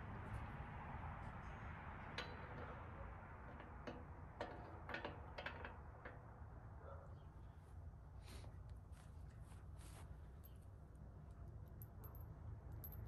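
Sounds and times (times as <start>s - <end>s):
hand tool tapping steel frame: 2.0s - 6.3s.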